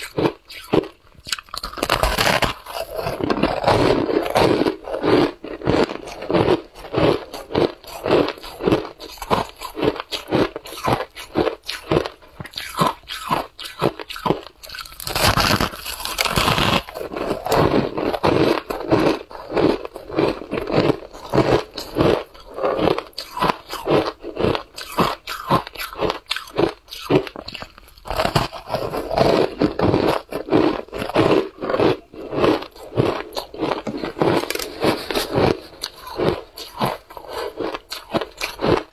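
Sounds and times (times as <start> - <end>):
shaved ice crunching: 14.7 - 18.1.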